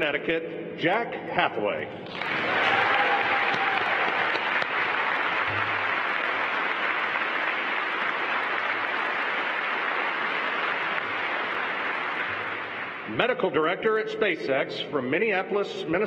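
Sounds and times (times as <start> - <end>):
audience applauding: 2.0 - 13.2.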